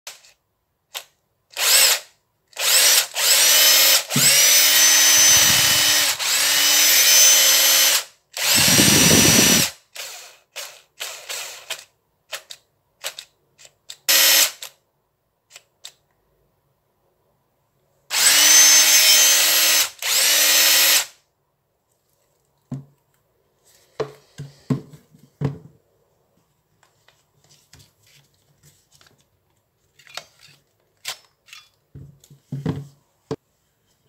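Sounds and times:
impact driver whining: 0:02.6 - 0:10.2, 0:18.1 - 0:21.1.

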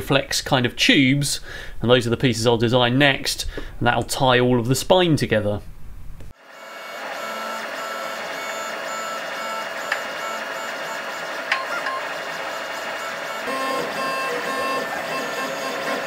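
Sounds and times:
three d printer stepper motors whining: 0:06.4 - 0:16.0.

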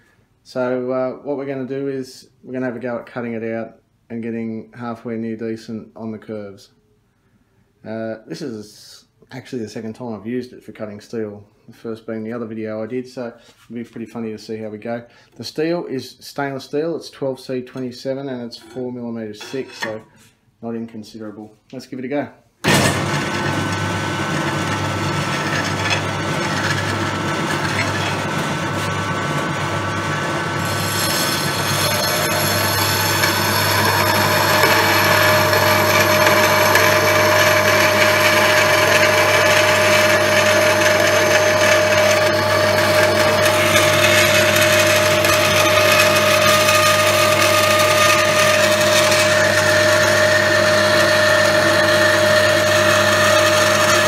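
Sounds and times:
bandsaw cutting steel: 0:22.6 - 0:54.0
bandsaw running: 0:22.6 - 0:54.0.

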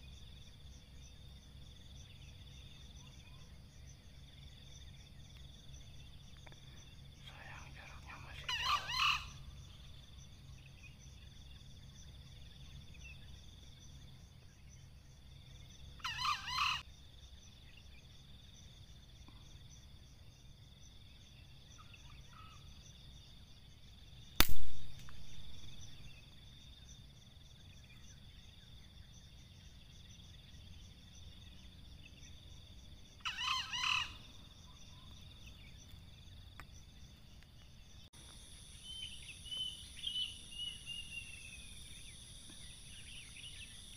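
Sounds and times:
air rifle shot: 0:24.4 - 0:25.3.

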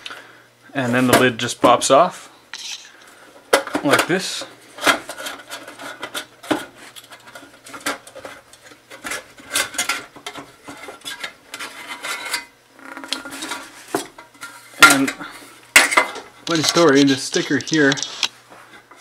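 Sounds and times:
metal lid clanking and scraping: 0:04.8 - 0:16.9.

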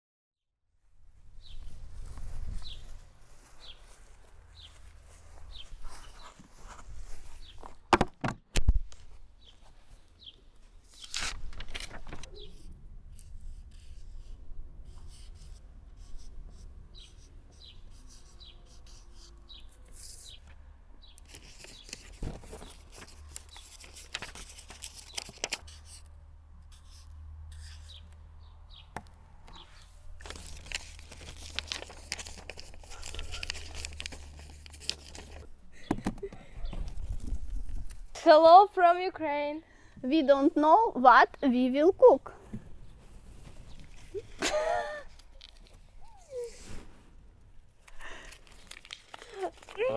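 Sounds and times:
paper slips rustling: 0:10.9 - 0:12.7, 0:21.3 - 0:25.8, 0:30.2 - 0:35.5, 0:48.0 - 0:49.9
marker scratching on paper: 0:12.5 - 0:20.5, 0:25.6 - 0:28.1.

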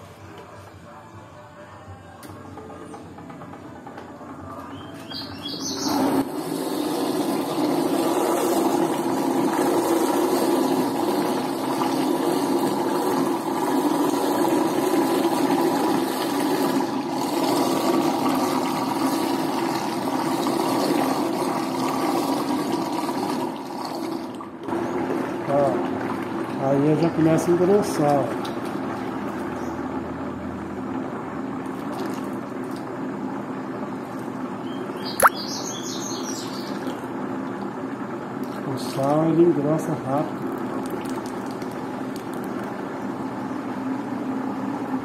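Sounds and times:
electric stirrer running: 0:02.6 - 0:45.0
liquid churning in bucket: 0:05.9 - 0:29.8, 0:31.6 - 0:33.0, 0:36.2 - 0:43.4.

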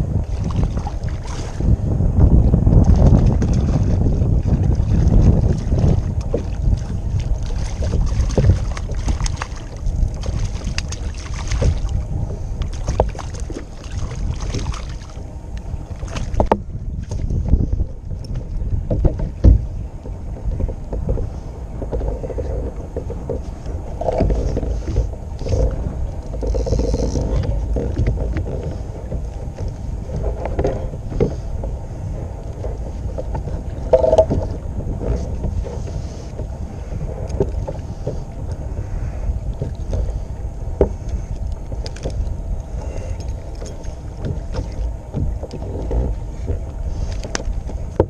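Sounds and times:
water slapping kayak hull: 0:00.0 - 0:48.0
wind buffeting microphone: 0:00.0 - 0:48.0
small knocks and clicks: 0:43.1 - 0:48.0.

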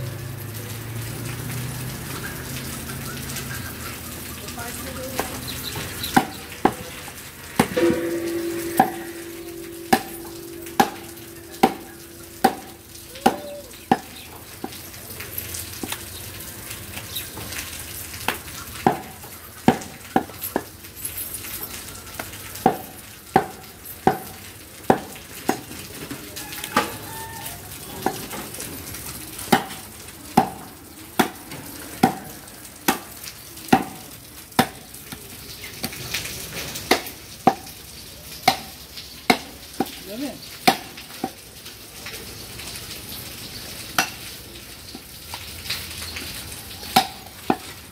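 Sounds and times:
steady tone: 0:07.8 - 0:12.9.

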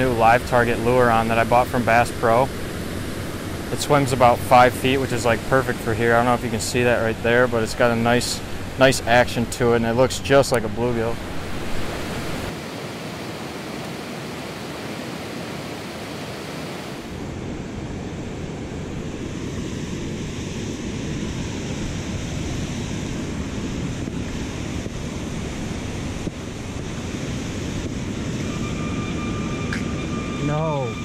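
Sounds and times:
water rushing over a dam: 0:00.0 - 0:17.2
wind buffeting microphone: 0:00.0 - 0:31.0.

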